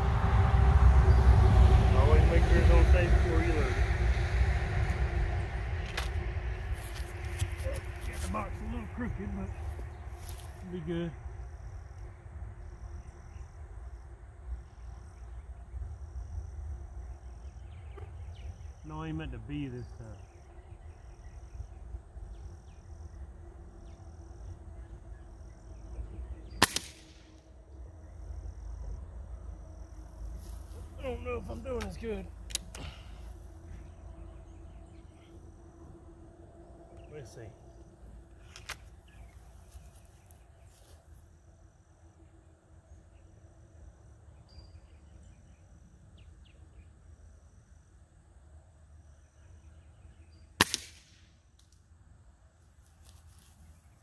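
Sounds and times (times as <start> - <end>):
wind rumble on microphone: 0.0 - 18.8
high insect trill: 0.0 - 54.0
pellet rifle shot: 26.5 - 27.3, 50.6 - 51.3
faint clicks: 32.5 - 32.8.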